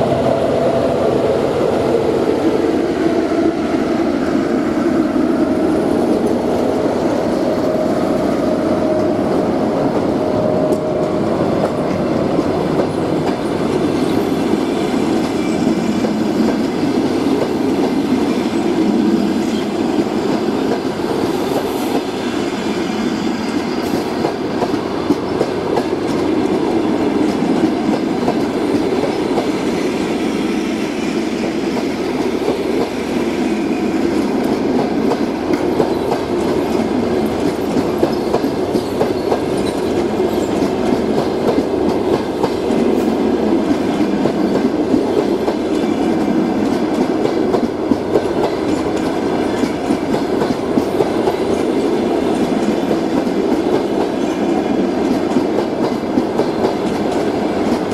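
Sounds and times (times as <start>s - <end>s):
train wheels rumbling on rails: 0.0s - 57.9s.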